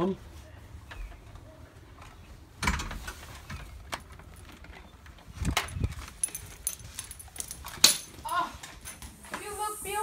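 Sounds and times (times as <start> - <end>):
light metallic clicks and jingles: 3.9 - 9.2.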